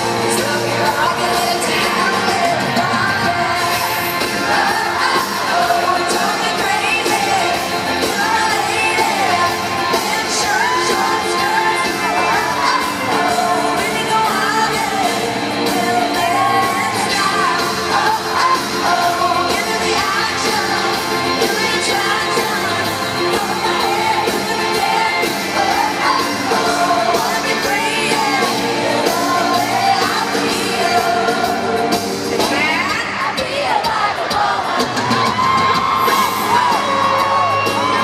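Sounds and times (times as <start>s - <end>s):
live band playing country-pop: 0.0s - 38.0s
woman singing into microphone: 0.0s - 38.0s.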